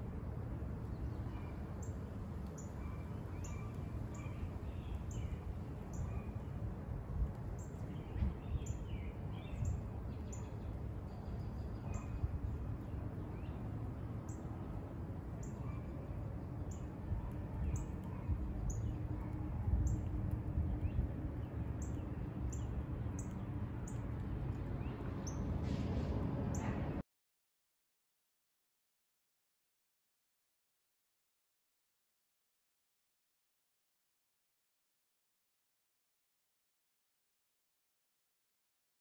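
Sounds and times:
low outdoor rumble: 0:00.0 - 0:27.0.

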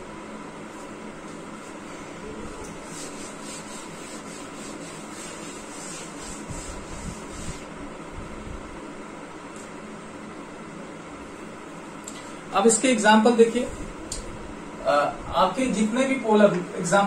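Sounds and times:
steady background hiss: 0:00.0 - 0:17.0
duster wiping chalkboard: 0:00.6 - 0:07.8.

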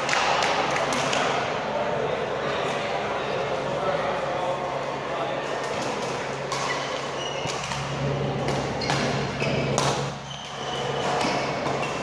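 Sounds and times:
busy sports hall noise: 0:00.0 - 0:12.0
rackets hitting shuttlecock: 0:05.6 - 0:12.0
steady low hum: 0:07.5 - 0:12.0.

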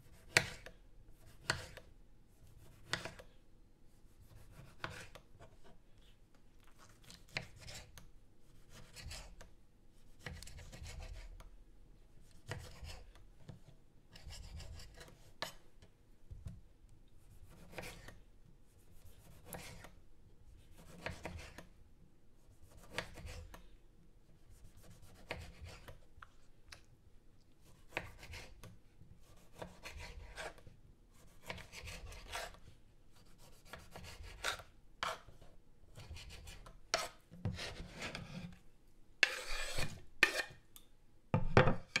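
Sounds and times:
knife scraping board: 0:00.1 - 0:01.9, 0:02.6 - 0:03.2, 0:04.3 - 0:05.2, 0:17.5 - 0:18.1, 0:27.7 - 0:28.6, 0:29.2 - 0:30.6, 0:31.2 - 0:32.6, 0:33.3 - 0:38.6, 0:39.2 - 0:40.6
knife slicing on wooden board: 0:31.4 - 0:32.6, 0:33.5 - 0:35.4, 0:39.2 - 0:40.6.

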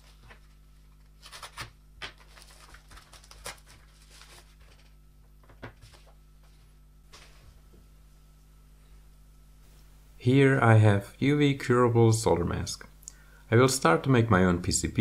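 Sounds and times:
packet crinkling and rustling: 0:00.0 - 0:06.2.

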